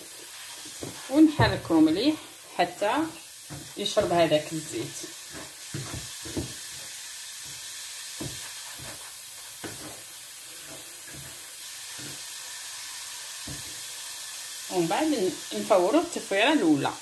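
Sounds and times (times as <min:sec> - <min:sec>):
hands tossing grains in wooden bowl: 0:03.5 - 0:13.9.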